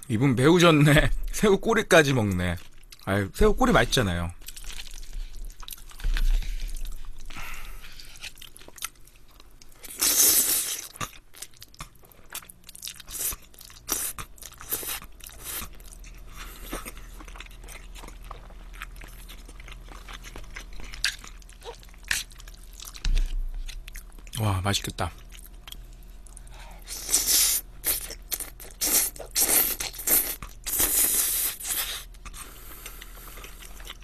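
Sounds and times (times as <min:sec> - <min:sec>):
wet chewing: 0:04.4 - 0:24.4.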